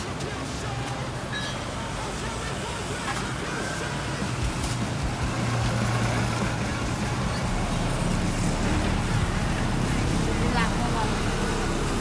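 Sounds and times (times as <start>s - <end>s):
street traffic: 0.0s - 12.0s
vehicle engine passing: 3.6s - 12.0s.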